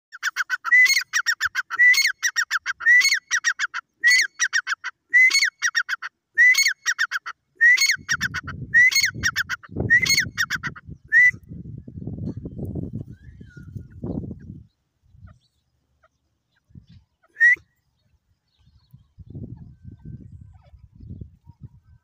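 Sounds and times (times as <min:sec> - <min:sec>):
francolin calling: 0:00.1 - 0:10.9.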